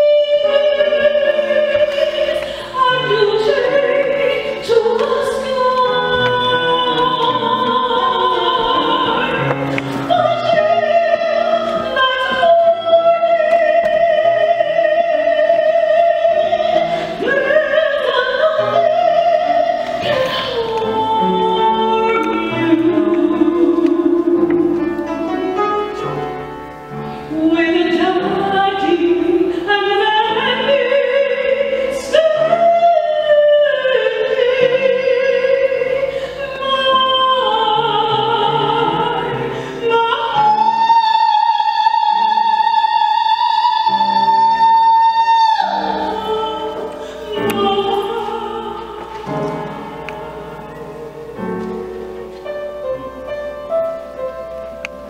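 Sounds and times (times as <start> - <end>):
woman singing gospel: 0.0 - 24.8, 27.3 - 51.8
instrumental accompaniment: 0.0 - 41.0.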